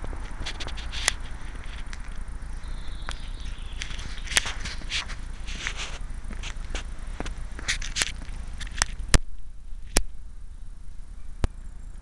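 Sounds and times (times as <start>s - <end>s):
low microphone rumble: 0.0s - 12.0s.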